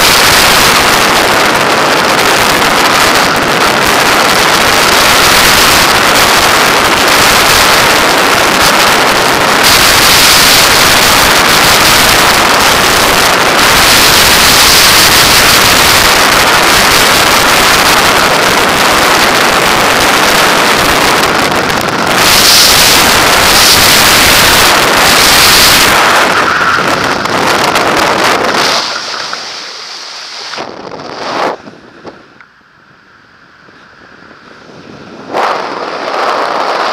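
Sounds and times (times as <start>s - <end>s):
freefall wind buffeting microphone: 0.0s - 36.9s
quiet wind under parachute: 0.0s - 36.9s.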